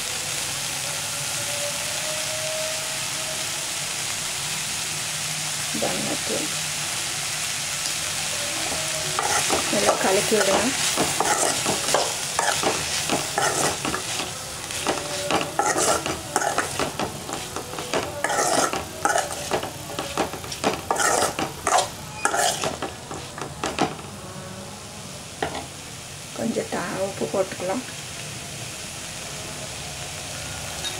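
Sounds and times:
frying sizzle: 0.0 - 30.9
spatula scraping steel pan: 8.7 - 23.9.

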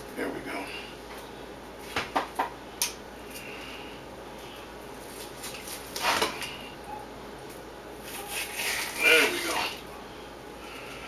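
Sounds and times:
fish skin tearing: 8.1 - 9.0.

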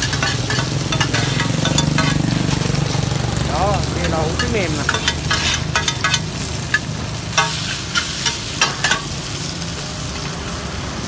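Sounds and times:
metal spatula scraping pan: 0.0 - 3.1, 3.9 - 9.2
noodles sizzling in oil: 0.0 - 11.0.

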